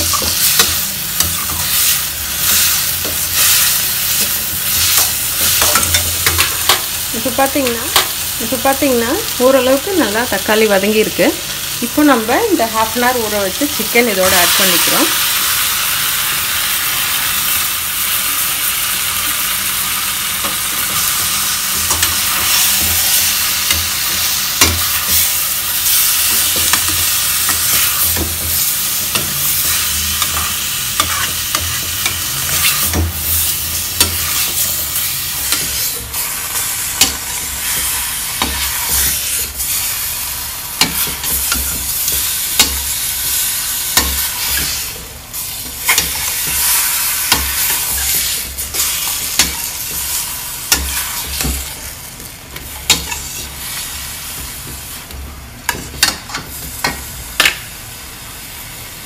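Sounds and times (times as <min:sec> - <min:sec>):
chicken sizzling in a pan: 0:00.0 - 0:59.0.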